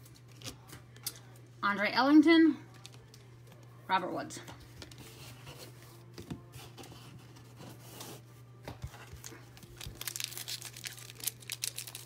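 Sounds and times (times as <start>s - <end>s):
foil wrappers tearing and crinkling: 9.1s - 12.0s.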